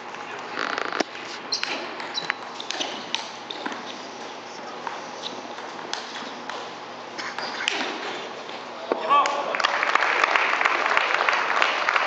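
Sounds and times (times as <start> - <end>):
short high squeaks: 0.6 - 4.0.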